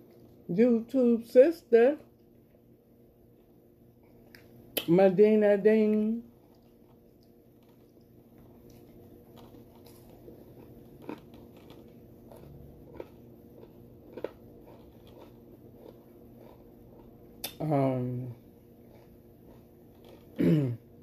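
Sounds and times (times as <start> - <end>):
faint hum: 0.0 - 21.0
person chewing food: 3.3 - 4.9, 6.3 - 17.6, 18.2 - 21.0.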